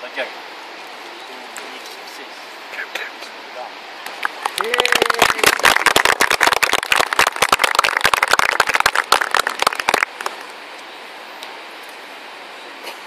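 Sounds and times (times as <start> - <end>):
faint steady hiss: 0.0 - 13.0
group applauding: 4.2 - 10.5.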